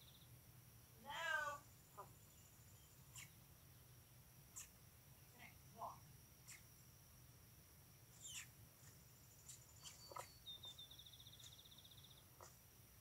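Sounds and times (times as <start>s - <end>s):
faint bird chirps: 0.0s - 0.4s, 1.0s - 7.2s, 8.0s - 13.0s.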